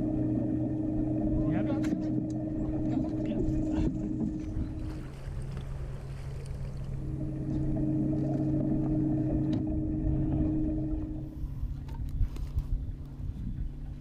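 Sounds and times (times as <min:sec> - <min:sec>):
electric trolling motor humming: 0:00.0 - 0:14.0.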